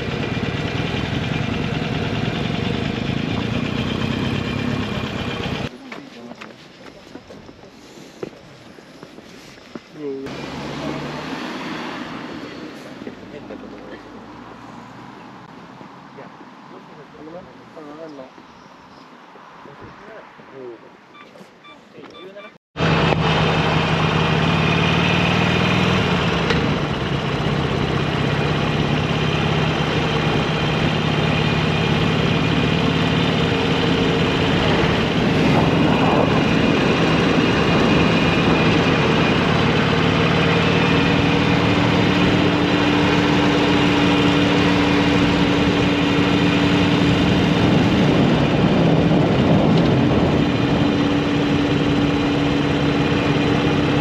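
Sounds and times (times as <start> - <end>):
motorcycle engine running: 0.0 - 5.7, 22.8 - 54.0
wind rush and road noise: 19.2 - 20.7, 25.6 - 54.0.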